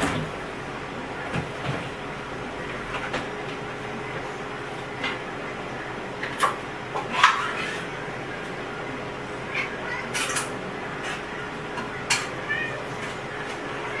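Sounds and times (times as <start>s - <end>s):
dishes and utensils clinking: 6.2s - 7.9s, 10.1s - 12.4s.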